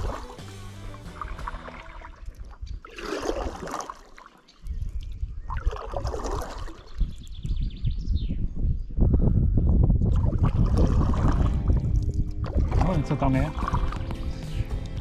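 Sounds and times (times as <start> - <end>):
water sloshing against kayak: 0.0 - 7.1, 10.1 - 14.6
wind rumble on microphone: 4.6 - 15.0.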